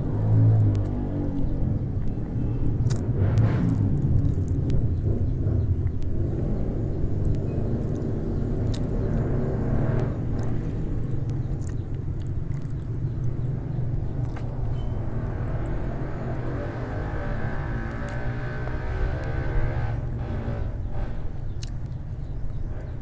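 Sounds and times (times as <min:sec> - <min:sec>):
low rumble: 0:00.0 - 0:23.0
chicken wings bitten and chewed: 0:00.1 - 0:06.2, 0:07.2 - 0:14.8, 0:21.6 - 0:22.7.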